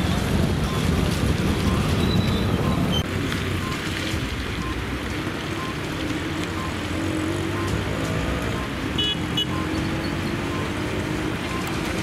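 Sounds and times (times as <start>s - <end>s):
outdoor rumble: 0.0s - 8.9s.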